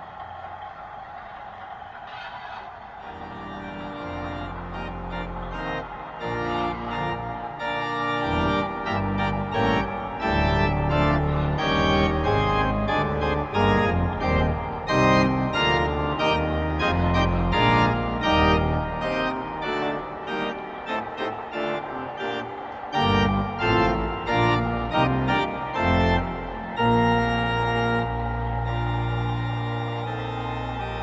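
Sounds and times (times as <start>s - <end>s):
organ chords: 2.9s - 31.0s
stepping organ bass line: 4.0s - 20.3s, 23.1s - 31.0s.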